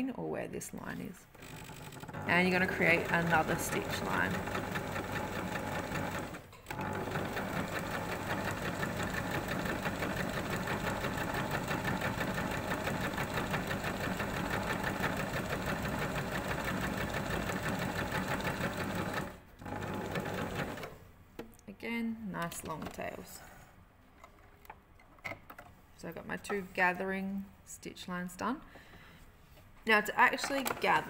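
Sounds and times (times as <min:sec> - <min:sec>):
sewing machine running: 0:01.4 - 0:21.0.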